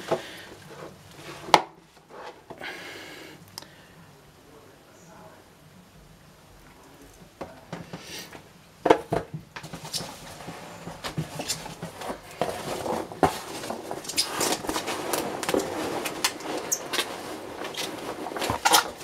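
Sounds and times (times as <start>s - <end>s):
packing peanuts rustling: 9.6s - 19.0s.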